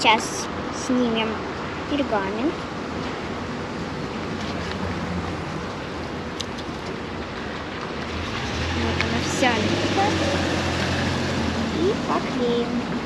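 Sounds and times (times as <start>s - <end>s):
distant city traffic: 0.0s - 13.0s.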